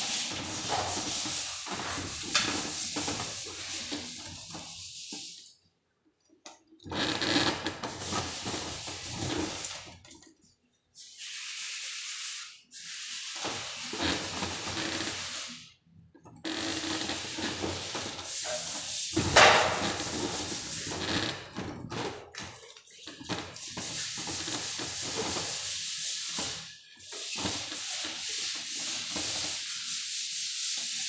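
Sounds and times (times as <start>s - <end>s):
hands rubbing plaster: 0.0s - 5.4s, 17.0s - 21.3s.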